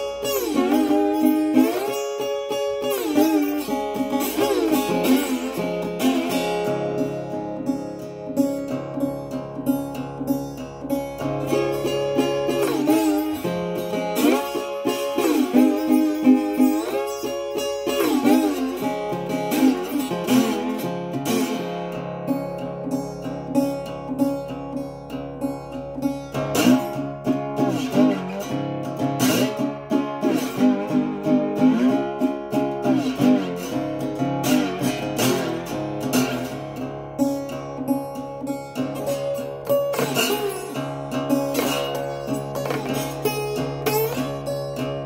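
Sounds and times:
slide acoustic guitar: 0:00.0 - 0:45.0.

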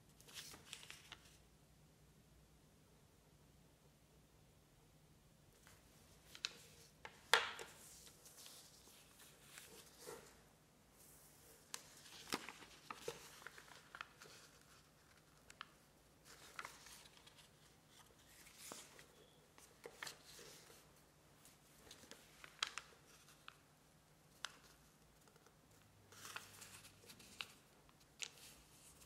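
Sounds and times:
paper rustling and crinkling: 0:00.2 - 0:01.4, 0:05.6 - 0:10.4, 0:11.0 - 0:23.7, 0:26.1 - 0:29.0.

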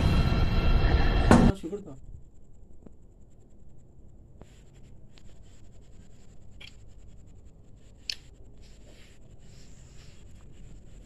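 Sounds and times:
faint rustling: 0:04.4 - 0:11.0.

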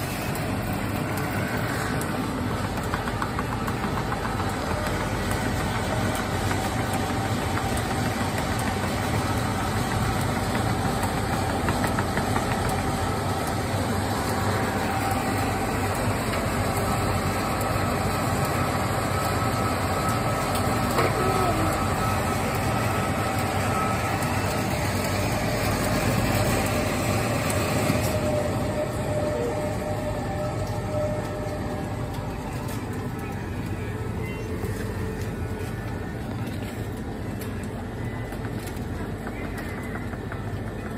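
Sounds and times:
drink machine humming: 0:00.0 - 0:40.9.

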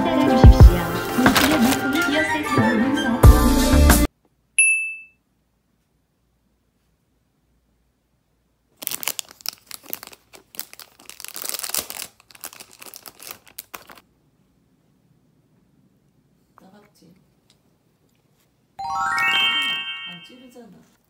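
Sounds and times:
packaging crinkling and tearing: 0:01.0 - 0:02.1, 0:08.8 - 0:14.1.

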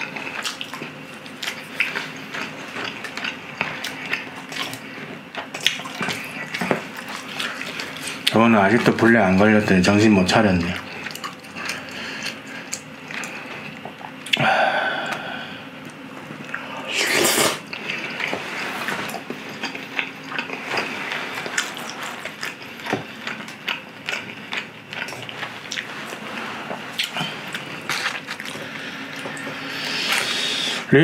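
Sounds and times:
wet chewing: 0:00.0 - 0:09.0, 0:10.6 - 0:15.2, 0:15.8 - 0:30.4
slurps: 0:16.5 - 0:19.2.

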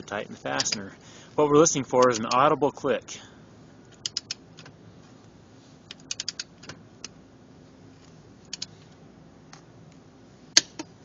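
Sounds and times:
torque wrench clicking: 0:05.9 - 0:06.7.

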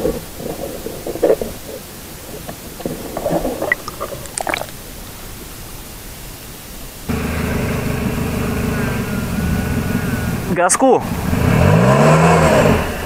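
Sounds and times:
underwater gurgling and bubbling: 0:00.0 - 0:04.7.

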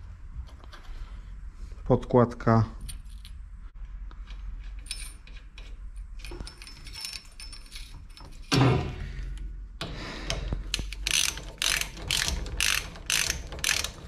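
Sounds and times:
small metal clinks: 0:04.6 - 0:08.5
socket ratchet clicking: 0:10.7 - 0:14.0.

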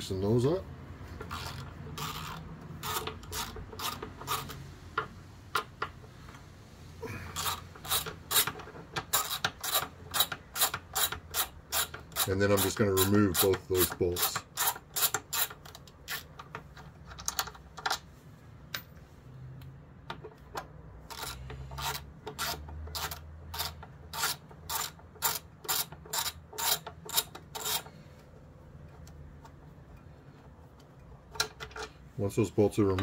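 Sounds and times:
ratchet wrench clicking: 0:01.2 - 0:05.7, 0:07.4 - 0:16.8, 0:21.0 - 0:28.0.

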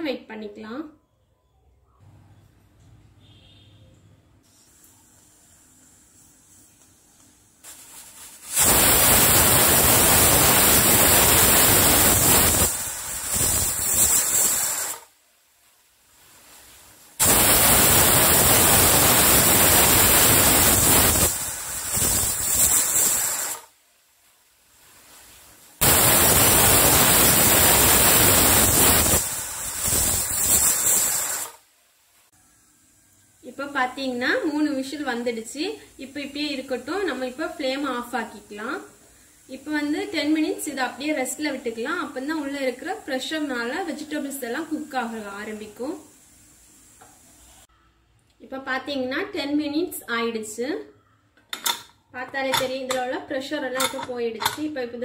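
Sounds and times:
pressure cooker whistling: 0:08.4 - 0:15.0, 0:17.2 - 0:23.7, 0:25.8 - 0:31.6.

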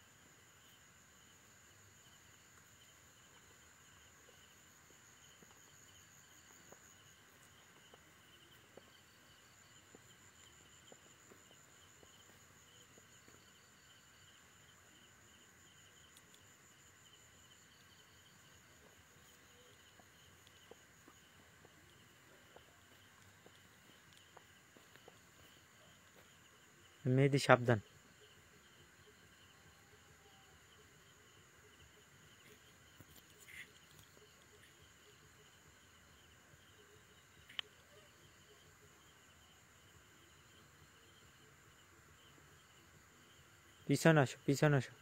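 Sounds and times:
crickets trilling: 0:00.0 - 0:45.0
faint ticks: 0:15.7 - 0:18.0, 0:18.8 - 0:26.4, 0:32.3 - 0:35.1, 0:37.2 - 0:38.1.

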